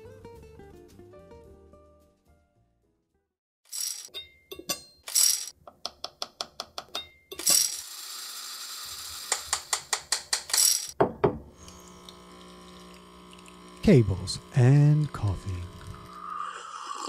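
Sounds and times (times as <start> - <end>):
electrical hum: 11.4 - 16.7.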